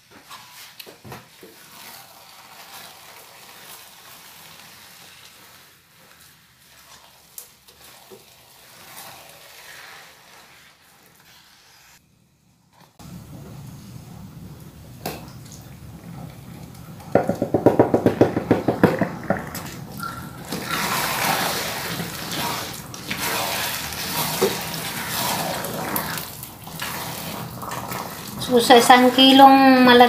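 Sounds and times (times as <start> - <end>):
spatula stirring sticky rice: 0.0 - 12.0, 20.0 - 29.4
soft sizzle: 0.0 - 17.2, 19.6 - 30.0
spatula scraping pan: 0.1 - 12.0, 17.5 - 30.0.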